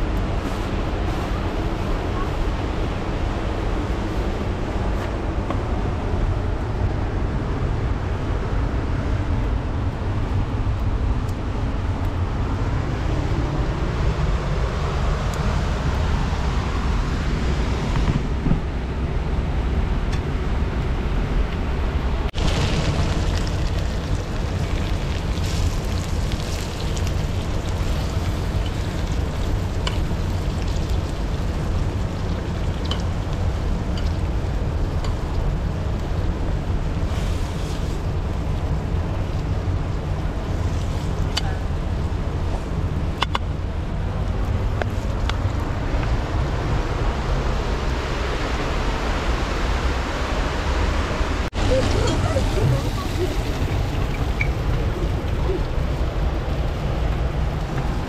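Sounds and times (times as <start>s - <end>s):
wind rumble on microphone: 0.0s - 58.0s.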